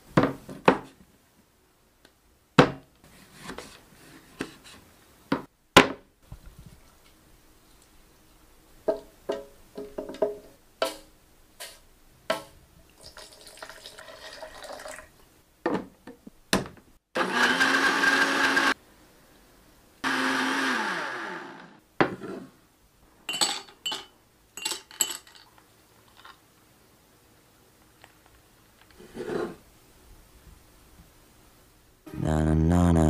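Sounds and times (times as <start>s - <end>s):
blender motor running: 17.2s - 18.8s, 20.0s - 21.8s.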